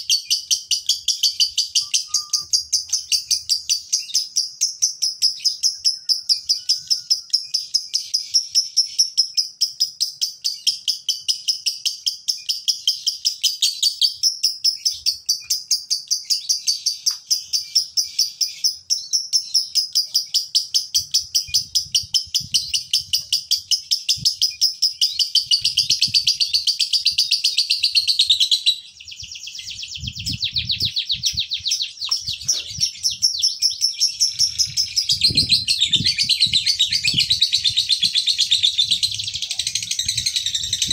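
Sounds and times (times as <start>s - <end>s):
lovebird shrill chattering: 0.1s - 4.4s, 13.2s - 40.9s.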